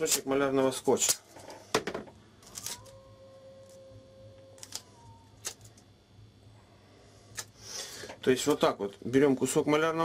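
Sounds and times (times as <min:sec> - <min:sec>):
low steady hum: 0:00.0 - 0:10.0
masking tape clicks and rustles: 0:02.4 - 0:03.0, 0:04.6 - 0:05.9.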